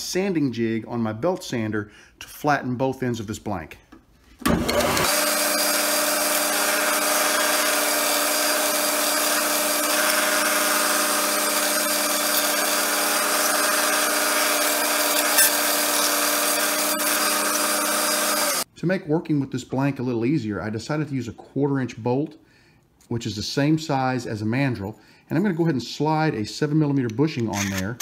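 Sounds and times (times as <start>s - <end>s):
belt sander running: 4.4s - 18.7s.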